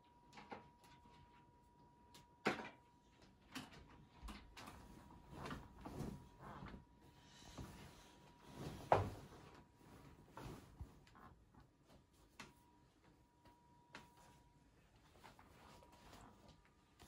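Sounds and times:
bedding rustling: 4.2 - 13.2, 14.1 - 17.0.

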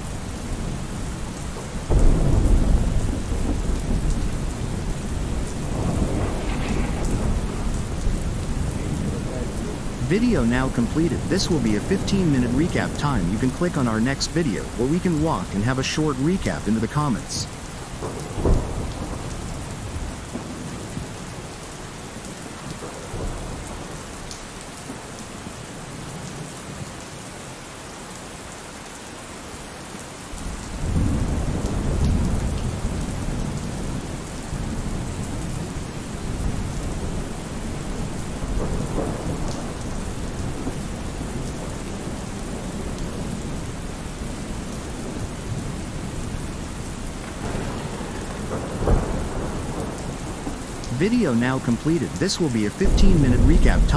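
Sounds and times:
steady rain: 0.0 - 53.9
rumbling thunder: 0.5 - 10.0, 17.8 - 21.5, 30.4 - 50.9.

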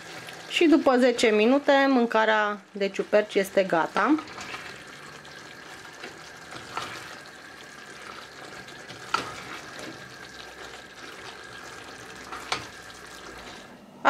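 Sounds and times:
low sizzle: 0.0 - 14.0
wooden spatula stirring stew: 3.1 - 13.8.

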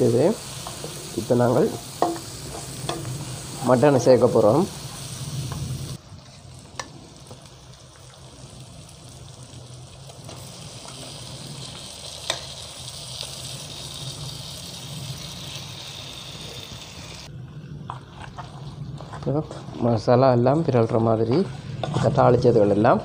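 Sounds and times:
spices sizzling in a hot wok: 0.0 - 17.4.

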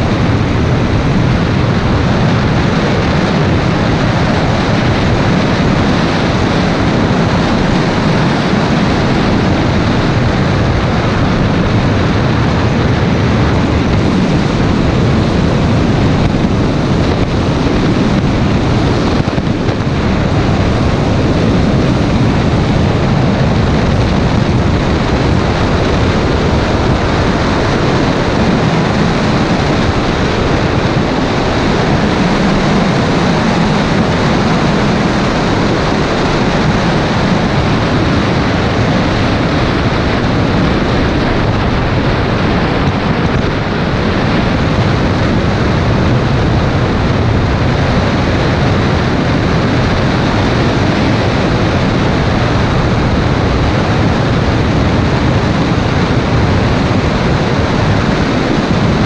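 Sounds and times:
car road noise at speed: 0.0 - 59.0
wind on microphone: 0.0 - 59.0.

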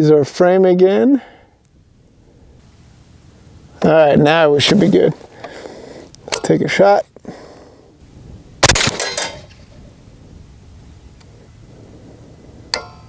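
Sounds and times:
suppressed rifle shot: 8.6 - 9.6.

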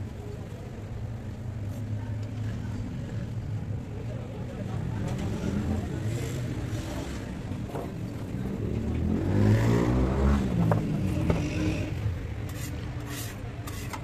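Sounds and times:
vehicle engine passing by: 8.4 - 12.2.

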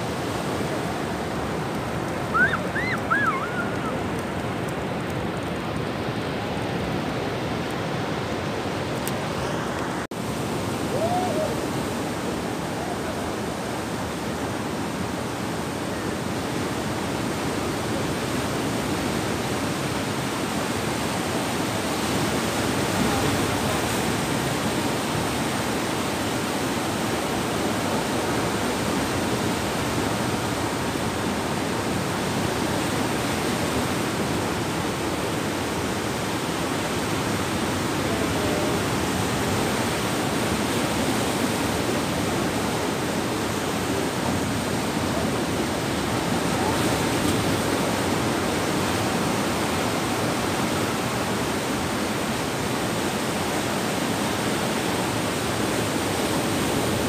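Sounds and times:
sea surf on rocky shore: 0.0 - 57.0.

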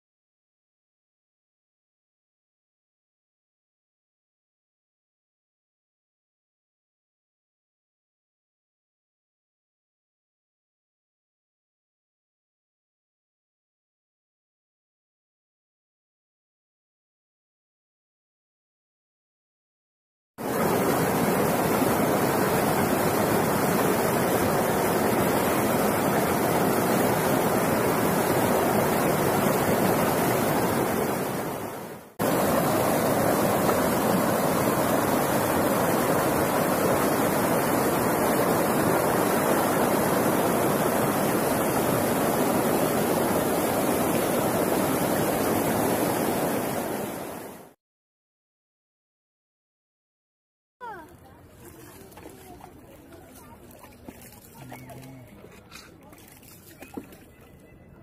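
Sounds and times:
river rapids rushing over rocks: 20.4 - 47.5.

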